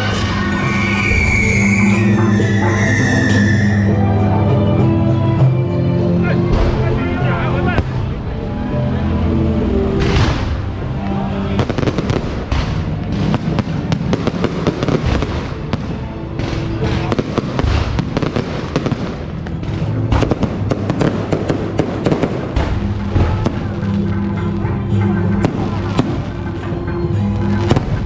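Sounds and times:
music: 0.0s - 28.0s
fireworks bangs and crackles: 10.0s - 28.0s.

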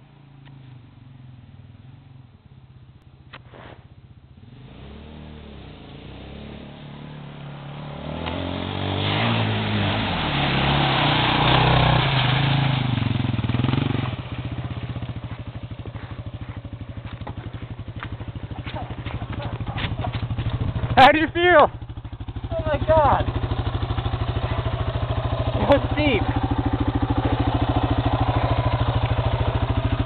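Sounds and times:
dirt bike engine revving: 3.4s - 30.0s
water splashing and spraying: 7.2s - 20.9s.

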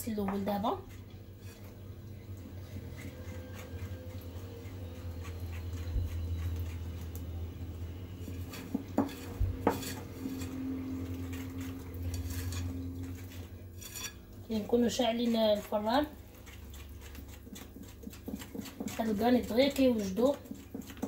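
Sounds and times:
steady low hum: 0.0s - 21.0s
whisk clicking against bowl: 15.2s - 21.0s.

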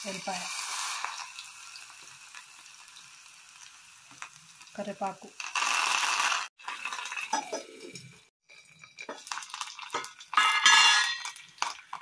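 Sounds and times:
metal lid and utensils clattering on pot: 6.9s - 8.2s, 8.9s - 11.8s.

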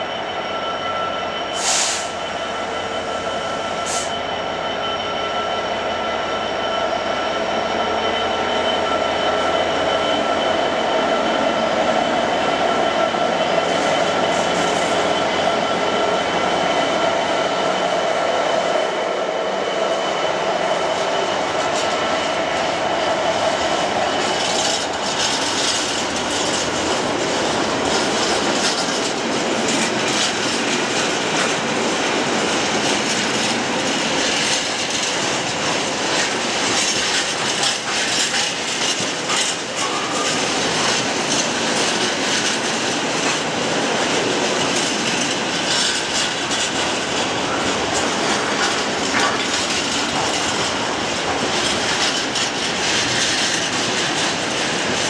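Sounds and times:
train wheels clattering over rail joints: 20.7s - 55.0s.

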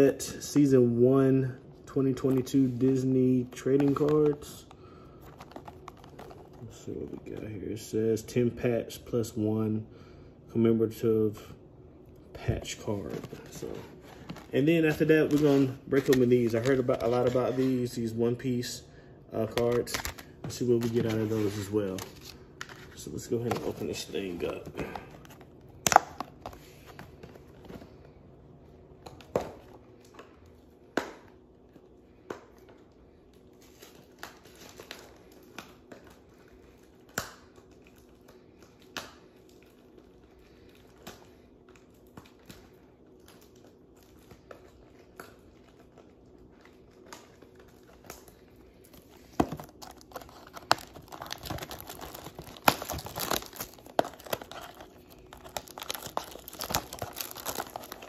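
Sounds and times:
plastic shrink-wrap crackling: 33.4s - 58.0s.

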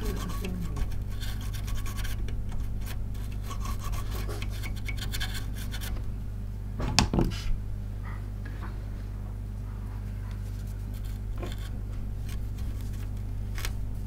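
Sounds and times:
brush scrubbing circuit board: 0.0s - 6.1s.

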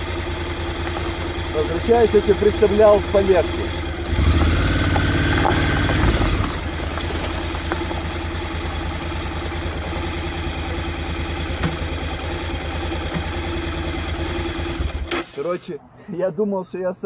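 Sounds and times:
motorcycle engine idling: 0.0s - 15.4s.

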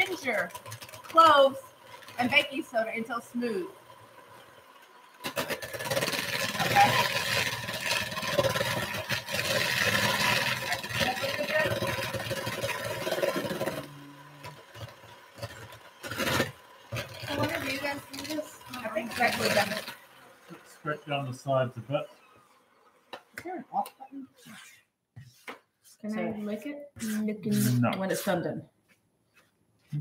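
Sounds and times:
electric stand mixer running: 3.2s - 20.6s.

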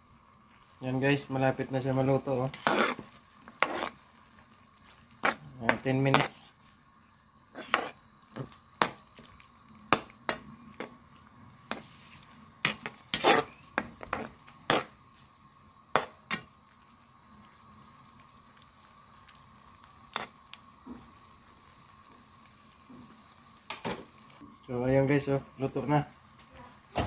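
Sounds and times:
metal ladle scraping a pan: 2.5s - 4.0s, 7.5s - 8.0s, 11.7s - 15.0s.

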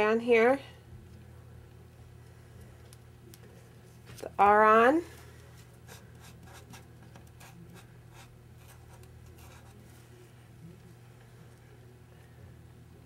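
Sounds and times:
steady low hum: 0.0s - 13.0s
glue pen scratching on paper: 5.8s - 9.8s.

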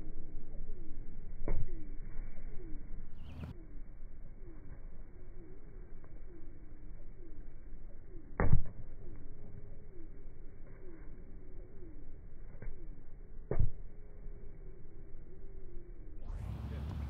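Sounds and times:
bird calling: 2.5s - 8.3s.

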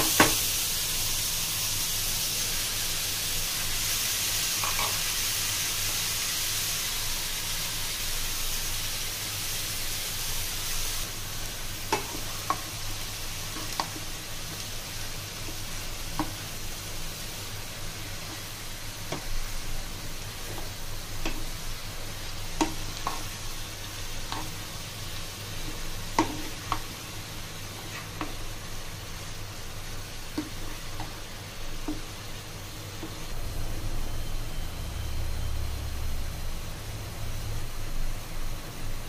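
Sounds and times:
food sizzling in frying pan: 0.0s - 39.0s
steady low hum: 9.8s - 39.0s.

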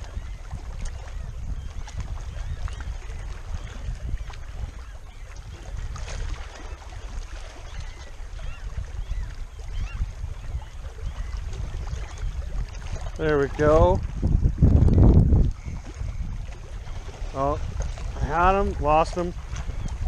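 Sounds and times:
wind buffeting microphone: 0.0s - 20.0s
waves lapping on rocks: 11.6s - 20.0s.

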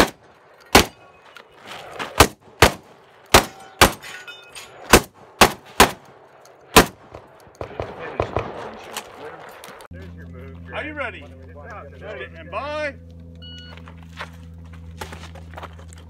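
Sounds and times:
gunshots: 0.0s - 1.1s, 2.0s - 4.1s, 4.8s - 9.4s
metallic ringing of steel targets: 0.6s - 1.3s, 3.4s - 4.9s.

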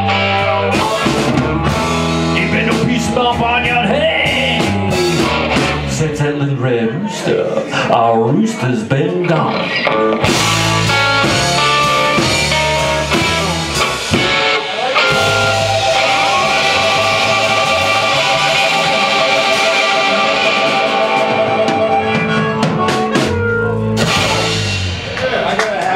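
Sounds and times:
full-band hit: 0.0s - 6.0s, 10.2s - 25.9s
electric blues band playing: 0.0s - 25.9s
cymbals washing: 10.3s - 25.9s.

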